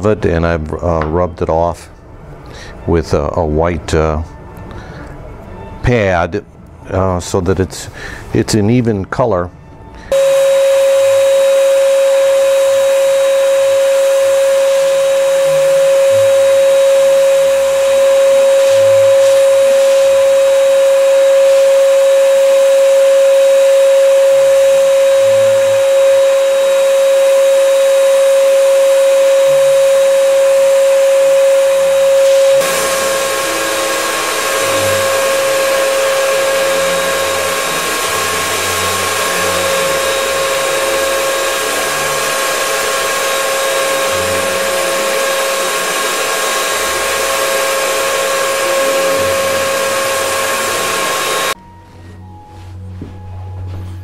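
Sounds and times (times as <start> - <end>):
spray turbine whine: 10.1 - 51.6.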